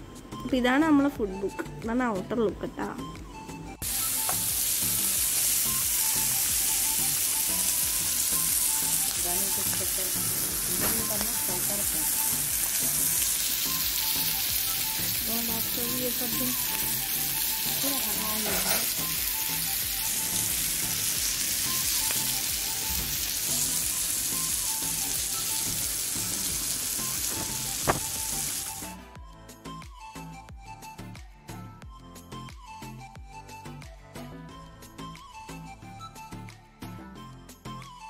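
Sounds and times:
food sizzling on hot plate: 0:03.8 - 0:28.9.

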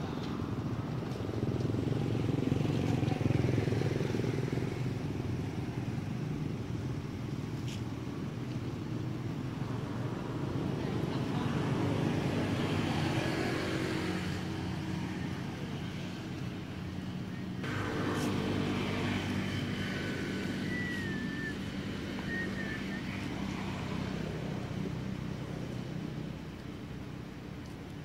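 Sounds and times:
engine humming: 0:14.4 - 0:28.0.

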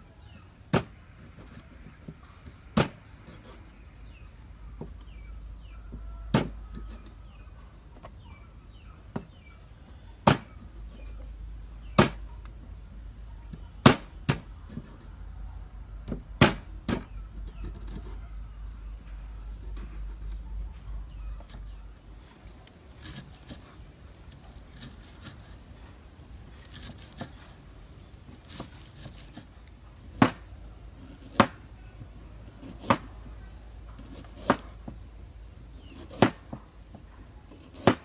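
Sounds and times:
cleaver chopping on wooden block: 0:00.7 - 0:01.0, 0:02.7 - 0:03.1, 0:05.9 - 0:07.0, 0:10.2 - 0:10.6, 0:11.9 - 0:12.2, 0:13.8 - 0:14.6, 0:16.1 - 0:17.1, 0:30.1 - 0:31.7, 0:32.6 - 0:33.2, 0:34.0 - 0:35.0, 0:35.8 - 0:36.6, 0:37.5 - 0:38.0.

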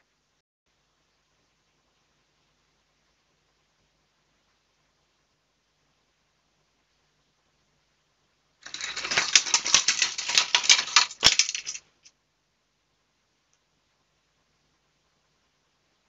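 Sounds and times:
metal trap rattling on concrete: 0:08.6 - 0:11.9.

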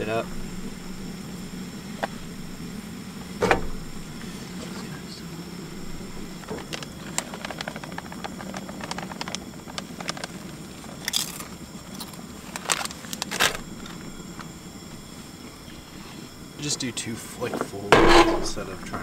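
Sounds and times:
steady low hum: 0:00.0 - 0:19.0
cheese shaken from a bag: 0:06.9 - 0:11.1
utensil clanking on skillet: 0:17.9 - 0:18.6.

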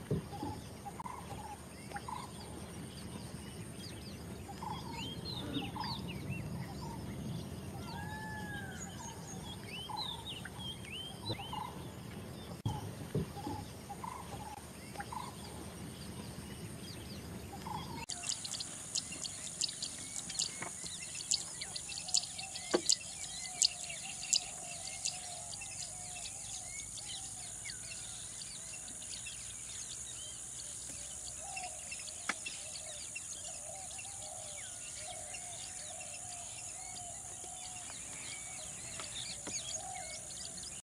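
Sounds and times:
wild birds calling: 0:00.0 - 0:40.8
steady high hiss: 0:17.4 - 0:39.4.

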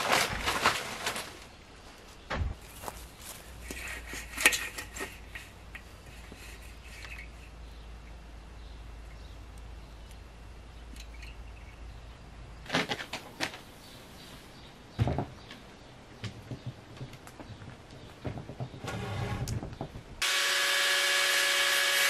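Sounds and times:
plastic sheets clattering: 0:00.0 - 0:01.5, 0:12.7 - 0:13.6
low steady hum: 0:01.5 - 0:12.7.

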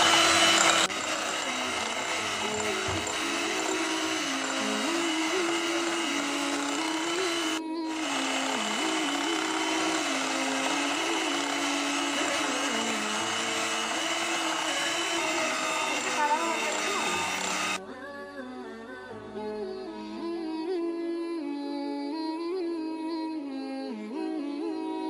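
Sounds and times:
electric hand mixer whipping: 0:00.0 - 0:17.8.

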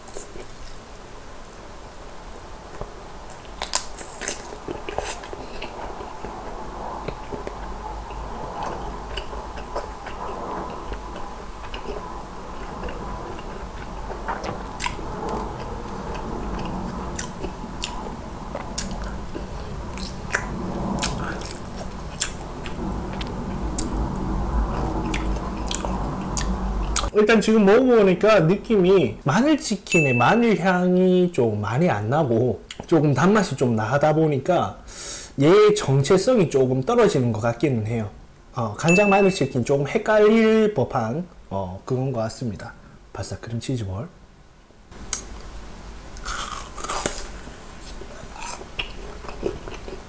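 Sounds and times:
person chewing: 0:02.7 - 0:24.0, 0:24.7 - 0:27.1, 0:46.2 - 0:50.0
crunching fried chicken: 0:03.3 - 0:24.0, 0:46.2 - 0:50.0.

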